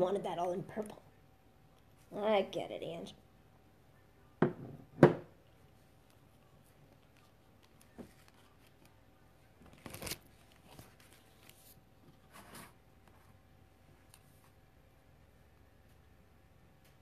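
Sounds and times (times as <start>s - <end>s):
rustling and handling noises: 5.5s - 14.8s.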